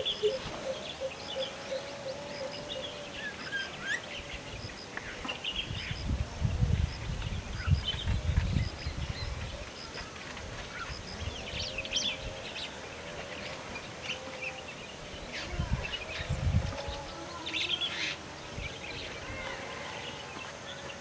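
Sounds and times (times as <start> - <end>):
birds chirping: 0.0 - 6.1.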